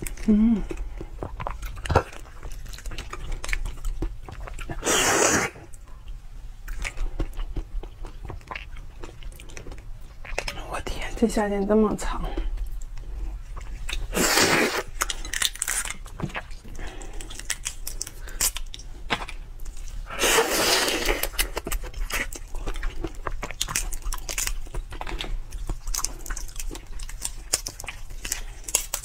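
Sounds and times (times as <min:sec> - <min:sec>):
slurping and sucking: 0:04.8 - 0:05.6, 0:14.0 - 0:15.0, 0:20.1 - 0:21.4
prawn shell crunching and cracking: 0:13.9 - 0:20.0, 0:20.6 - 0:29.0.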